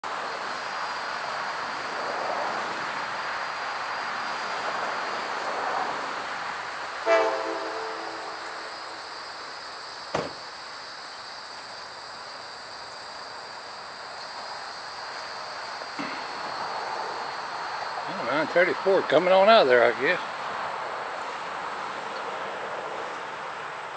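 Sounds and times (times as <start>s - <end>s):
diesel locomotives idling: 0.0s - 23.9s
locomotive horn blast: 7.0s - 8.8s
sharp knock: 10.1s - 10.5s.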